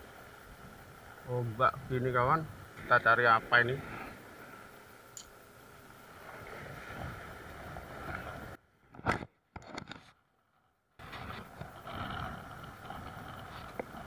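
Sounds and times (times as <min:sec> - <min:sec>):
sea noise: 0:00.0 - 0:08.8, 0:11.0 - 0:14.0
wind on microphone: 0:06.2 - 0:08.6, 0:11.0 - 0:14.0.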